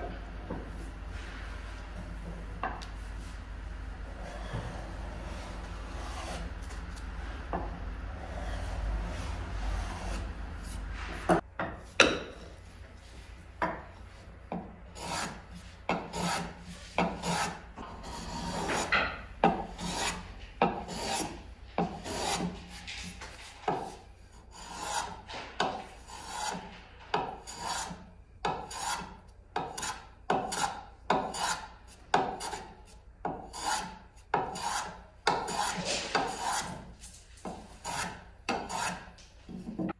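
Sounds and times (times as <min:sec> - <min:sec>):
block plane shaving wood: 0:04.2 - 0:06.8, 0:08.2 - 0:11.4, 0:15.0 - 0:22.8, 0:24.5 - 0:26.6, 0:27.2 - 0:39.1.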